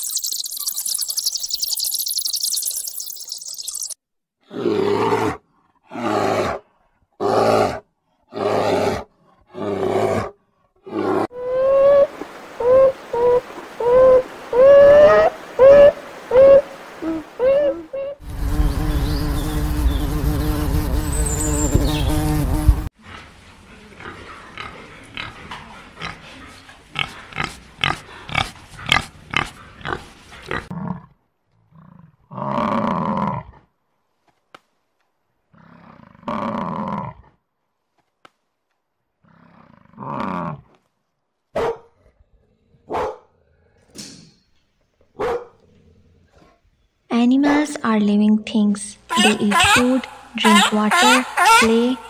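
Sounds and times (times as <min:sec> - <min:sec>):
pigs grunting: 0:23.0 - 0:31.1
drawn-out animal call: 0:49.1 - 0:52.0.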